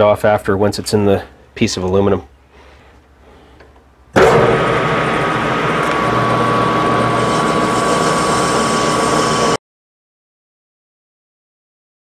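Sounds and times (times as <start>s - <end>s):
high whine of cutting tool: 4.2s - 9.6s
metal lathe running: 4.2s - 9.6s.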